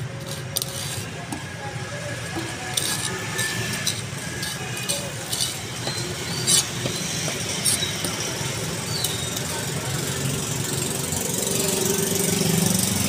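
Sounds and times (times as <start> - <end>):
knife scraping fish scales: 0.0 - 9.7.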